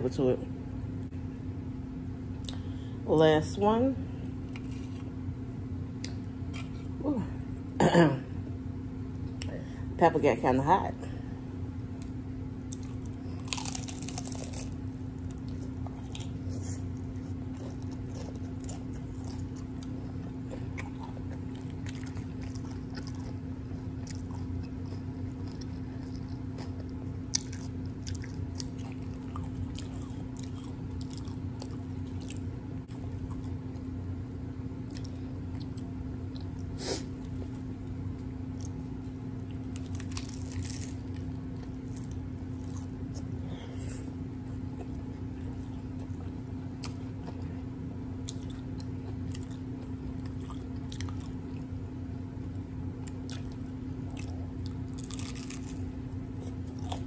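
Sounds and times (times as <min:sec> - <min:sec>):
crunchy taco chewing: 0:04.4 - 0:05.2, 0:05.9 - 0:07.0, 0:11.8 - 0:57.0.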